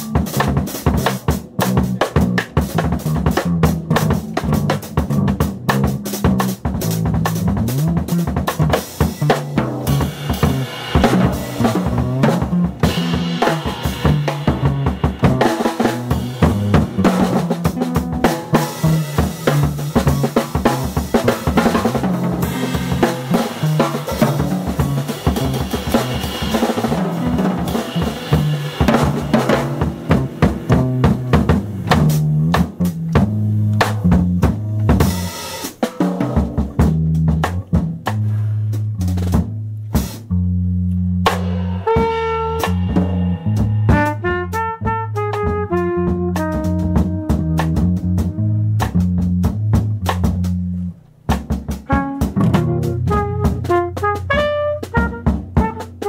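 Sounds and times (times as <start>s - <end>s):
bass line: 0.0s - 35.4s, 36.0s - 56.0s
jazz drum kit: 0.0s - 56.0s.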